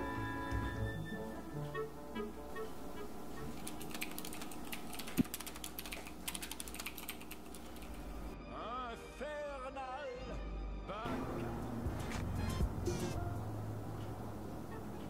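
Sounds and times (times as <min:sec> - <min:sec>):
background music: 0:00.0 - 0:04.9, 0:08.1 - 0:15.0
fast typing on laptop keyboard: 0:03.5 - 0:08.2.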